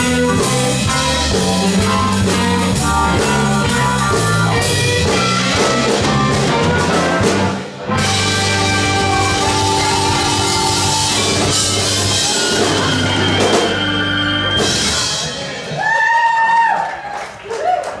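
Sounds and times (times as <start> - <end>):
keyboards: 0.0 - 15.8
electric guitar: 0.0 - 15.9
blues band playing: 0.0 - 16.6
drums: 0.0 - 18.0.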